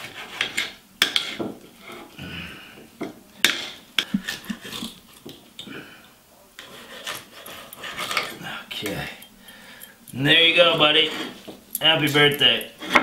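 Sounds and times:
cutlery scraping on plate: 0.0s - 2.1s, 3.4s - 5.4s, 6.6s - 8.4s, 10.7s - 11.6s, 12.6s - 13.0s.

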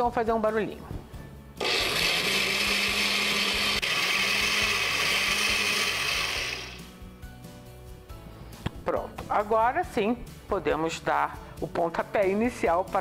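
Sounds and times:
blender grinding rice: 1.6s - 6.9s.

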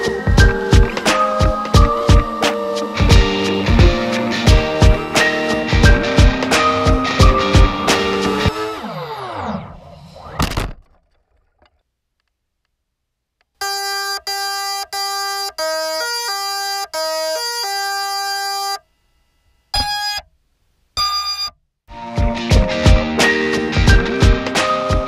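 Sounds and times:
electronic beeping melody: 0.0s - 8.5s
background music slowing down: 0.0s - 8.7s, 21.9s - 25.0s
short electronic beeps: 21.0s - 21.6s.

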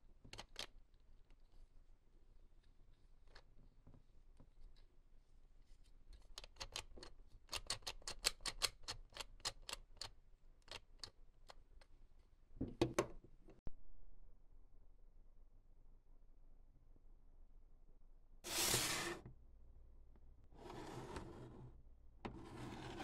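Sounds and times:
toys and packaging clicking: 0.3s - 0.8s.

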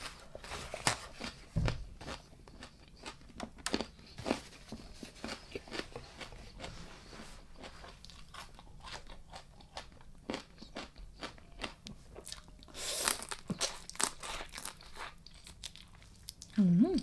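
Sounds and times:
chewing crunchy food: 2.0s - 16.6s.

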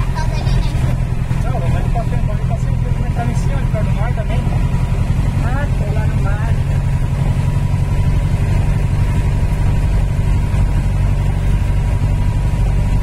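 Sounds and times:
car engine and road noise: 0.0s - 13.0s.

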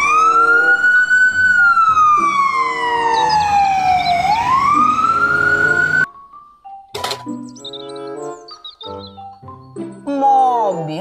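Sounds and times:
ambulance siren wailing: 0.0s - 6.1s.

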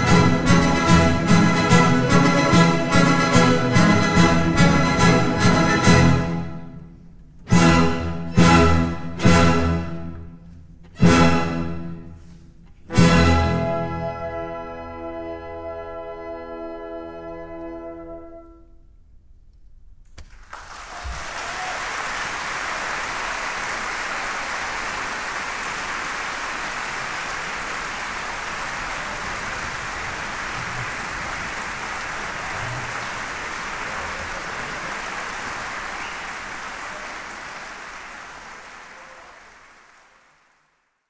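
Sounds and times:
audience applauding: 20.2s - 41.0s.

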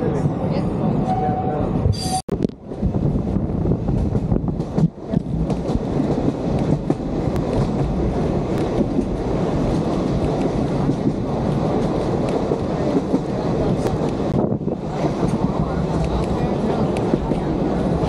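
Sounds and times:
train wheels rumbling on rail: 0.0s - 18.0s.

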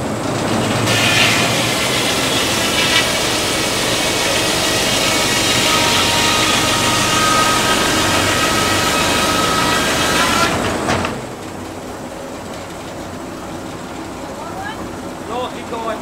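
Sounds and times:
saw blade whining through log: 0.0s - 11.4s
sawmill running: 0.0s - 16.0s.

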